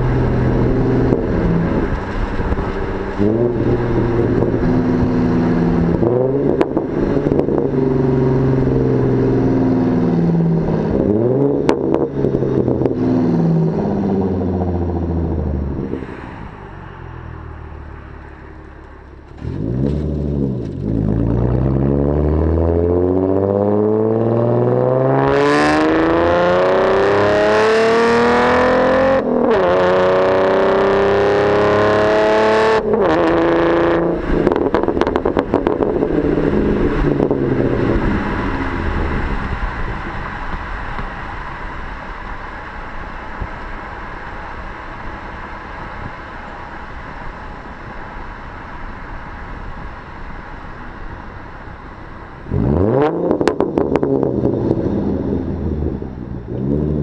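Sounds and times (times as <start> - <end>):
exhaust crackles and pops: 0.0 - 9.9, 17.6 - 21.9, 32.8 - 57.0
car engine accelerating: 0.0 - 57.0.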